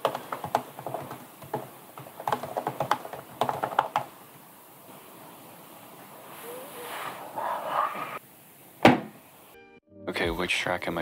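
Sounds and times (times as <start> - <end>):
fast typing on a keyboard: 0.0 - 4.1.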